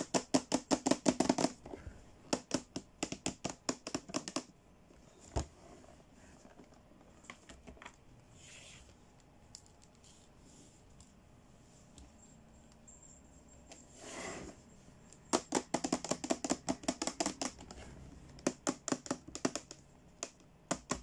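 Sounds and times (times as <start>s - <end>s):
fingernails tapping on plastic: 0.0s - 1.6s, 2.3s - 4.5s, 15.3s - 21.0s.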